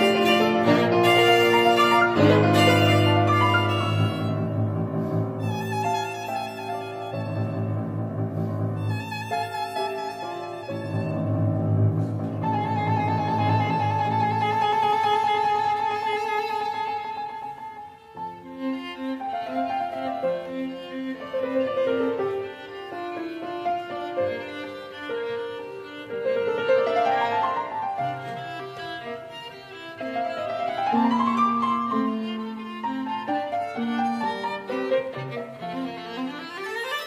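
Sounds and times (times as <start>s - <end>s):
instrumental music: 0.0s - 37.0s.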